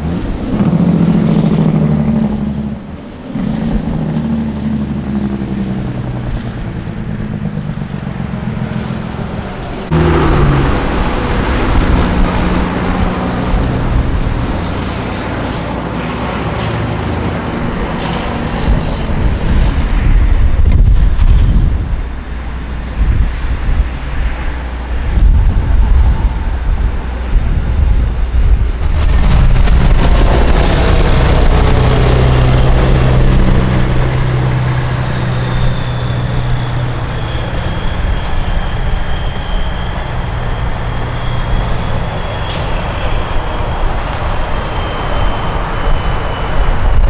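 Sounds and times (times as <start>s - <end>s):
truck diesel engine running: 9.9s - 24.1s
harsh diesel engine: 9.9s - 28.8s.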